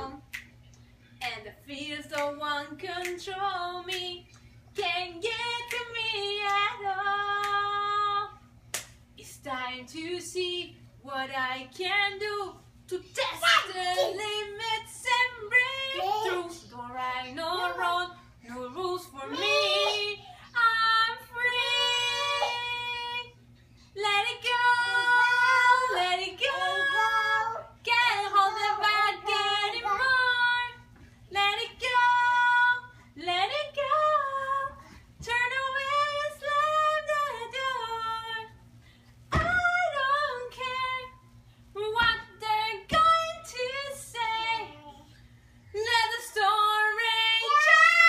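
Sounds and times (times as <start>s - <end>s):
toddler singing: 15.7s - 16.7s, 47.3s - 48.0s.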